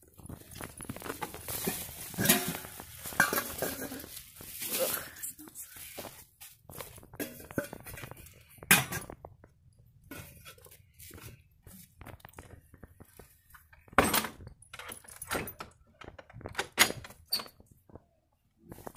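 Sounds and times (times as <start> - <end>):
rustling: 0.0 - 9.2
metal hardware knocks and clinks: 13.8 - 17.5.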